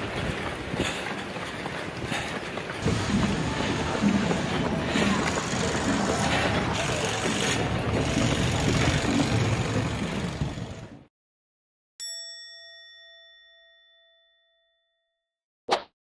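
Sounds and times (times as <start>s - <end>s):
runners outdoor noise: 0.0s - 11.1s
bell-like ding: 12.0s - 15.2s.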